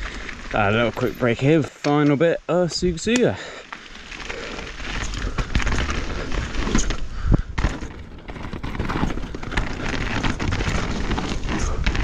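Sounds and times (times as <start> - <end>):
tyres crunching over stones: 0.0 - 12.0
bike clattering over bumps: 3.4 - 12.0
wind rumble on microphone: 4.9 - 12.0.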